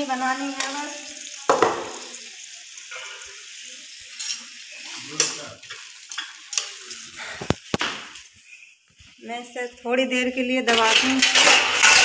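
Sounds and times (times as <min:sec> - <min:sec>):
vegetables sizzling in pan: 0:00.0 - 0:08.9, 0:10.4 - 0:12.0.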